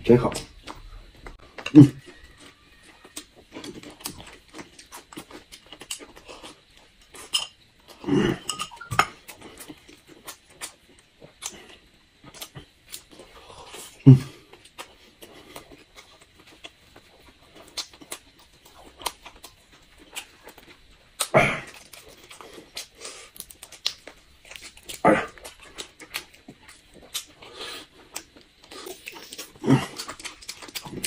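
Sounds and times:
wet chewing and lip smacking: 8.6 - 31.0.

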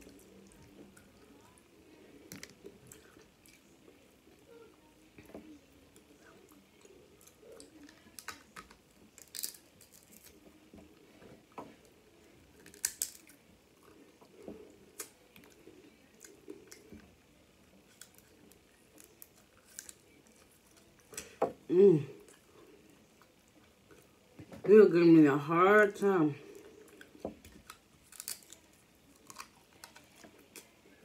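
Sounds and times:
sucking and chewing: 5.9 - 21.4, 26.4 - 31.0
crab shells cracking: 7.6 - 10.4, 12.6 - 13.4, 17.8 - 21.3, 26.8 - 30.8.

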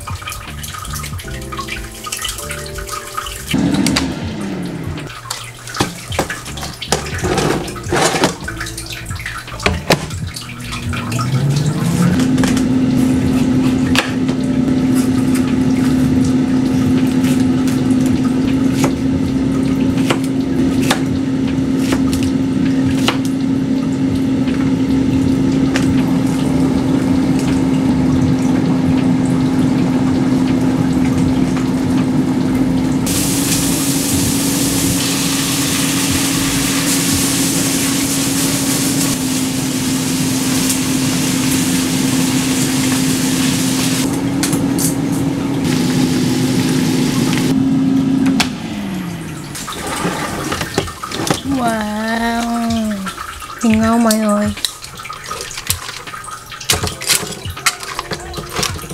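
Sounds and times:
frying pan sizzling: 0.0 - 58.9
oven fan humming: 2.6 - 54.6
tray and oven door clatter: 5.8 - 8.5.

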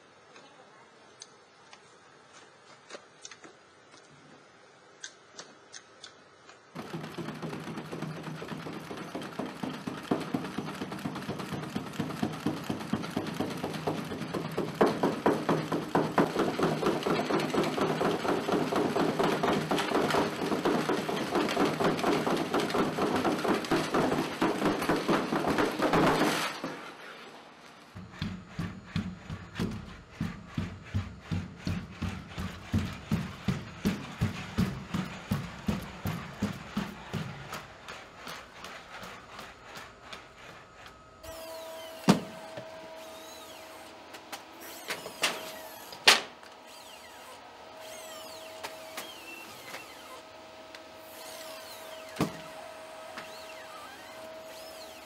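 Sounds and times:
robot mechanical hum: 27.9 - 55.0
robot steps tapping: 28.0 - 40.2
rapid patter of foot strikes: 28.0 - 40.5.

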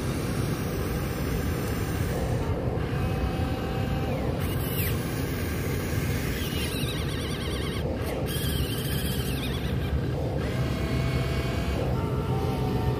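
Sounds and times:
model excavator rumbling: 0.0 - 12.9
faint short whines: 4.1 - 12.9.

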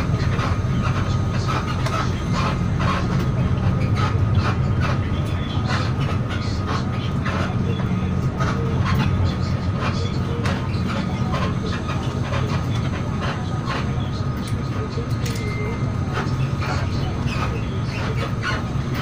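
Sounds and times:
engine and road rumble: 0.0 - 19.0.

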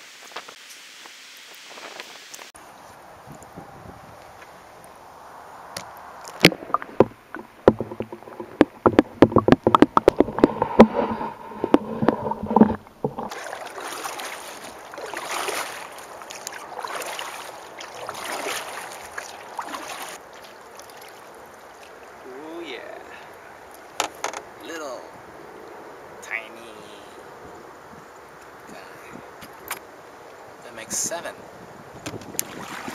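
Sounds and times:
paddle strokes in water: 6.2 - 22.2, 32.1 - 32.9
knocks and taps on a canoe: 6.4 - 14.6, 24.0 - 24.5, 32.0 - 32.5.

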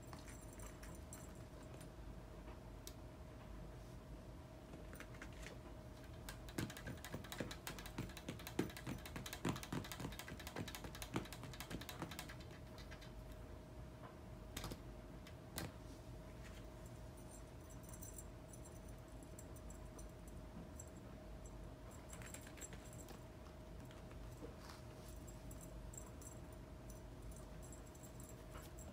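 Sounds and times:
faint steady hum: 0.0 - 28.9
cat batting toy clicks and taps: 6.0 - 13.2.

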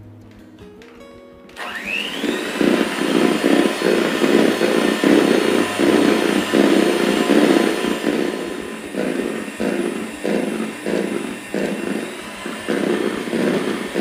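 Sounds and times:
electric hand mixer whining: 1.5 - 14.0.

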